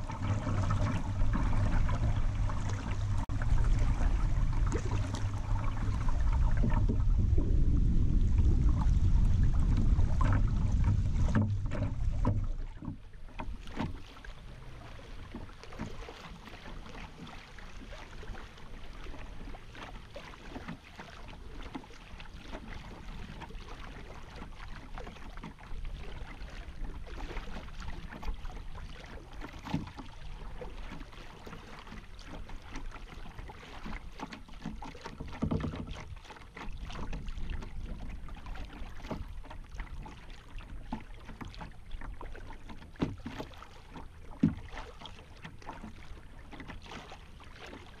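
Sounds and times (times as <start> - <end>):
wind buffeting microphone: 0.0 - 12.6
river water lapping against hull: 0.0 - 48.0.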